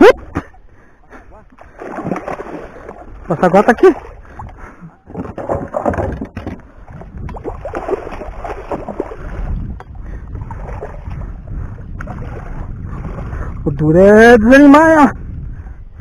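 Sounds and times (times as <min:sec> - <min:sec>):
fish splashing water: 0:00.2 - 0:11.2
wind on microphone: 0:04.0 - 0:16.0.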